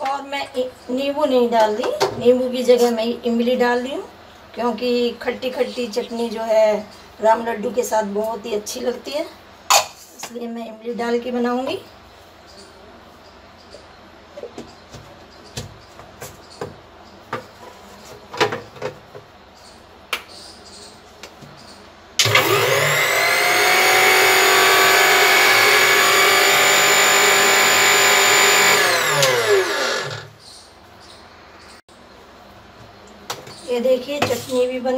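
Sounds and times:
mixer grinder motor running: 22.2 - 30.4.

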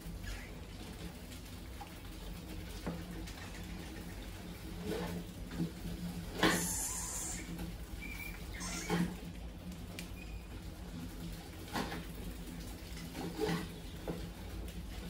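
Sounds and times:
high squeak: 6.5 - 9.1.

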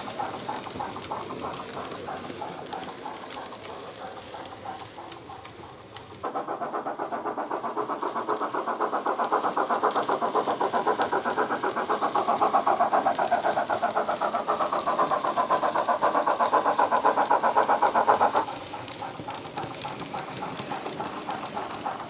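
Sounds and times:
quiet locomotive running sound: 0.0 - 22.0
steam locomotive chuffs: 0.0 - 22.0.

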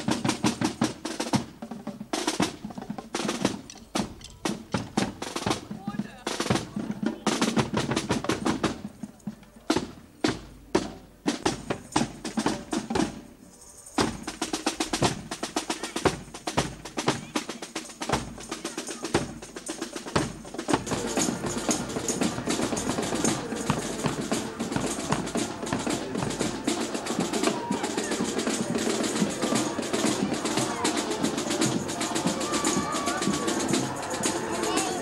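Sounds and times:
snare drum strokes and rolls: 0.0 - 13.4, 14.0 - 35.0
bass drum beats: 20.2 - 35.0.

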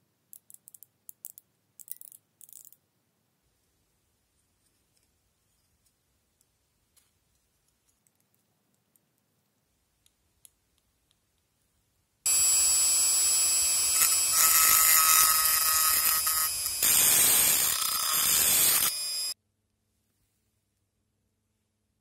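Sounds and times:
rotary tool grinding screech: 12.3 - 19.4.

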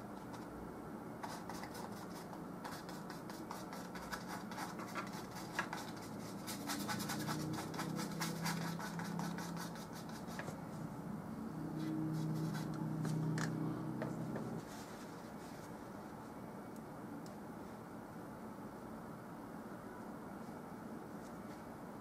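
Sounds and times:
paintbrush scratching on canvas: 1.2 - 10.6, 11.8 - 13.3.

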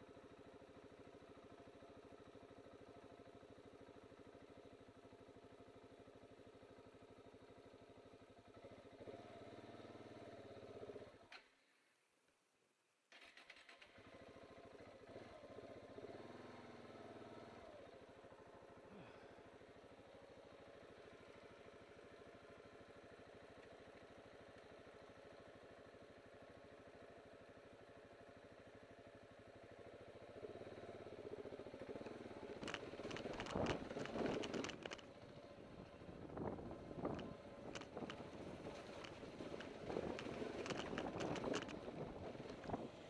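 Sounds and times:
motorcycle engine idling: 0.0 - 11.6, 13.2 - 43.0
motorcycle revving and moving off: 8.4 - 11.4, 13.2 - 27.5, 28.6 - 43.0.

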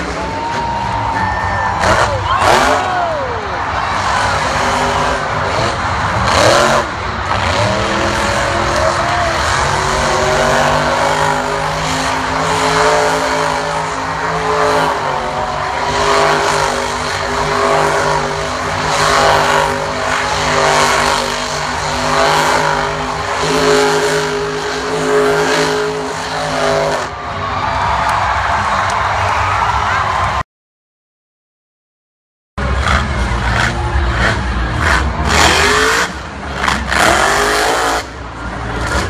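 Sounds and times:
truck engine at high revs: 1.6 - 27.2, 32.6 - 39.0.

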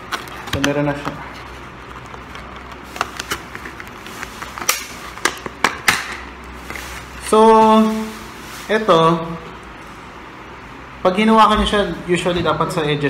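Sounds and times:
plastic packaging crackling and clicking: 0.0 - 7.8.

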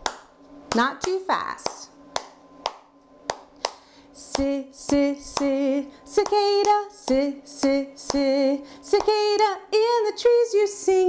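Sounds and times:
hand claps: 0.0 - 8.3, 8.9 - 9.2.

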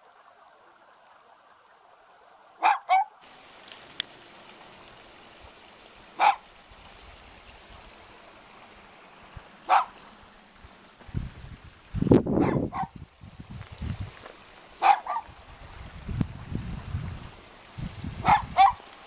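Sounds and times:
stream trickling: 0.0 - 19.0
dog barking: 2.6 - 3.2, 6.2 - 6.5, 9.7 - 10.0, 12.4 - 12.9, 14.8 - 15.3, 18.2 - 18.8.

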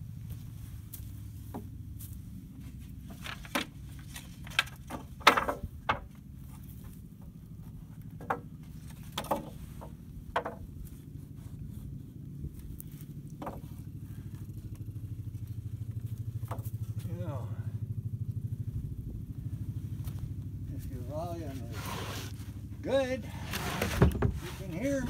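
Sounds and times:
steady low hum: 0.0 - 25.0
wooden strips knocking on boards: 4.4 - 6.1, 8.2 - 8.5, 9.1 - 10.7, 13.4 - 13.6.

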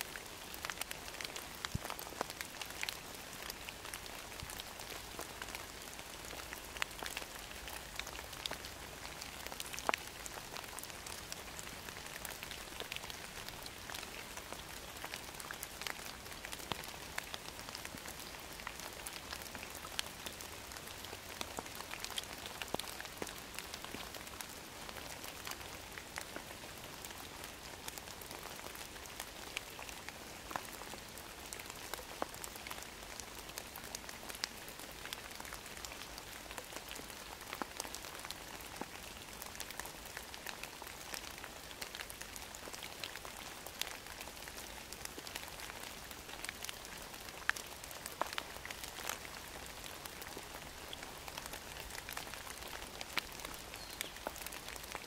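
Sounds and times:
rain hissing on leaves: 0.0 - 55.0
raindrops ticking: 0.1 - 55.0.

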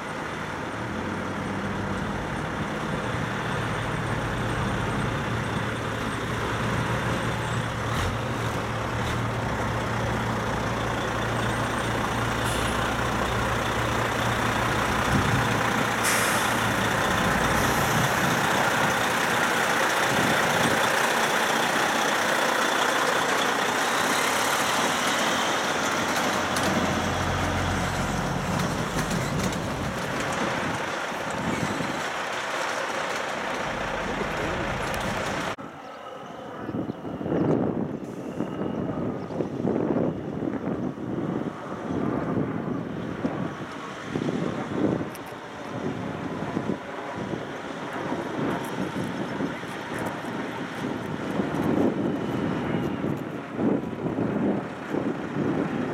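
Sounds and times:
diesel truck engine passing: 0.0 - 35.6
air brake hiss: 16.0 - 16.8.

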